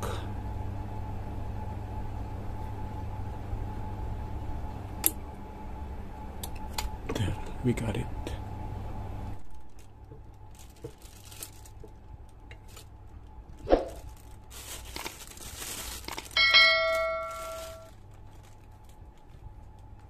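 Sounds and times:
plastic bag rustling: 9.4 - 20.0.

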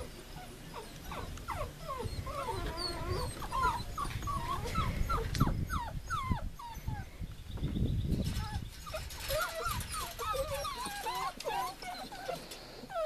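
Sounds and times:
puppies whining and whimpering: 0.0 - 7.2, 8.1 - 13.0.

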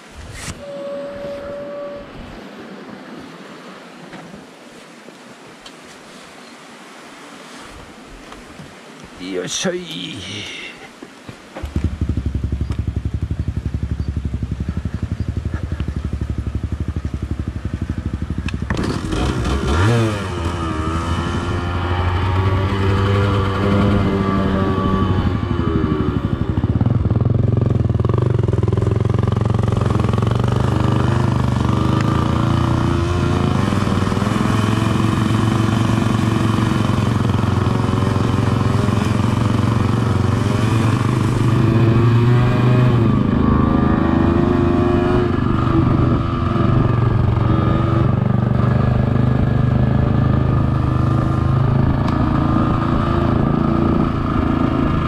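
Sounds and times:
dirt bike engine revving: 11.6 - 55.0.

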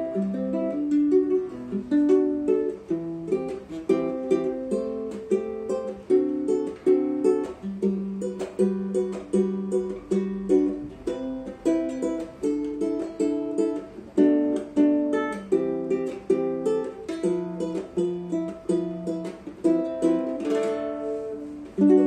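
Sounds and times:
fingerpicked nylon-string guitar: 0.0 - 22.0.

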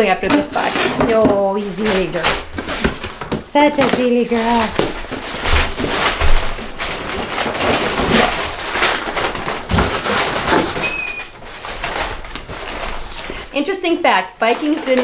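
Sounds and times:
paper and fabric rustling: 0.0 - 15.0
high squeak: 10.8 - 11.4.

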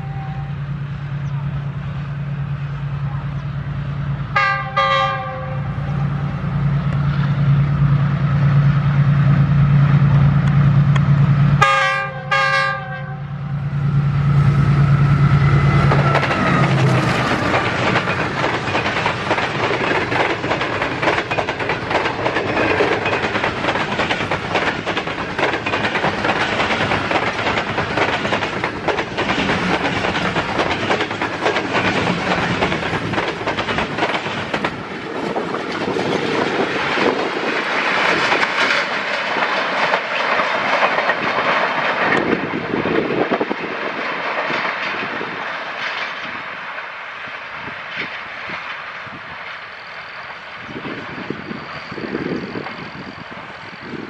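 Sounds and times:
train horn blasts: 0.0 - 0.8, 4.3 - 6.1, 11.6 - 13.6
diesel locomotive engine drone: 0.0 - 54.0
train wheels rumbling on rail: 0.0 - 54.0
clickety-clack over rail joints: 1.2 - 54.0.

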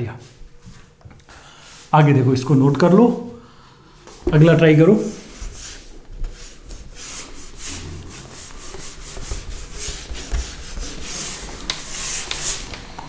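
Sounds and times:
person lecturing: 1.9 - 3.4, 4.2 - 5.3
scratchy rubbing on a board: 5.0 - 12.8.

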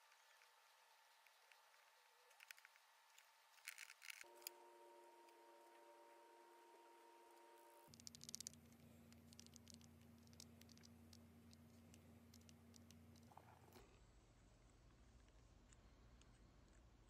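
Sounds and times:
faint room hum: 0.0 - 17.0
wooden lure clicking: 7.9 - 13.4.

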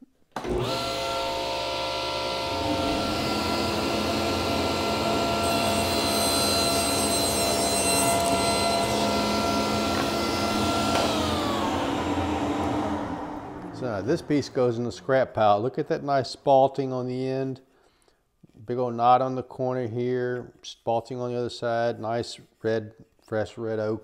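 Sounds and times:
table saw crosscutting wood: 0.4 - 14.8
saw motor winding down: 0.4 - 15.6
dust collector running: 0.4 - 15.7.

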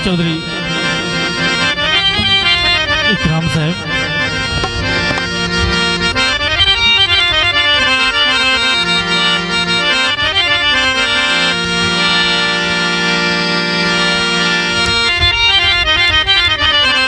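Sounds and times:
harmonium melody over drone: 0.0 - 17.0
hand drum beats: 1.8 - 7.0.

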